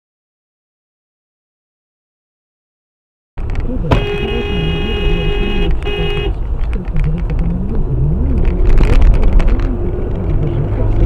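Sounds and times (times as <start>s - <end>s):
car engine and road noise: 3.4s - 11.0s
car horn: 3.8s - 6.4s.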